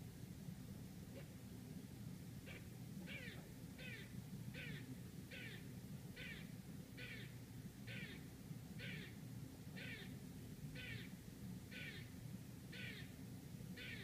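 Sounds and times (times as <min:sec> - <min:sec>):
squirrel barking: 0:02.4 - 0:09.2, 0:09.8 - 0:13.2, 0:13.8 - 0:14.0.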